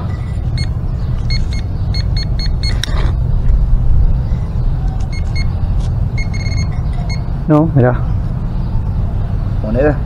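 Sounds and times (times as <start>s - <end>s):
metal detector beeps: 0.0s - 2.8s, 5.1s - 5.6s, 6.2s - 7.3s
low rumble: 0.0s - 9.6s.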